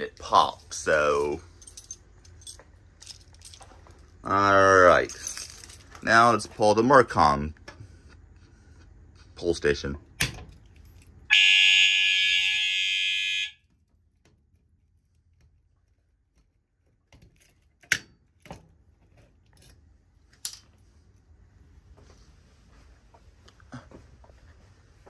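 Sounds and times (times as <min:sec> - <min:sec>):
fire alarm horn sounding: 0:11.3 - 0:13.6.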